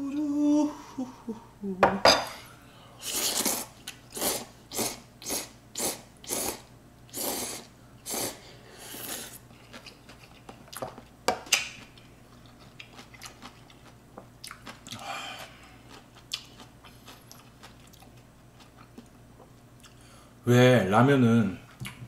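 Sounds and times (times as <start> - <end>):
noisy intake of breath: 2.4 - 9.4, 19.9 - 20.4
noodles slurped: 3.0 - 9.4.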